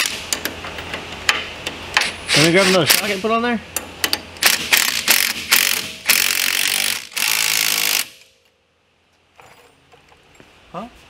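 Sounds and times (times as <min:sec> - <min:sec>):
impact wrench hammering bolt: 0:03.8 - 0:08.3.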